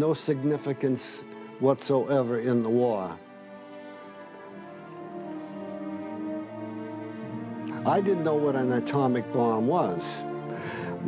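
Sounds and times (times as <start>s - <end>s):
slow background music: 0.0s - 11.0s.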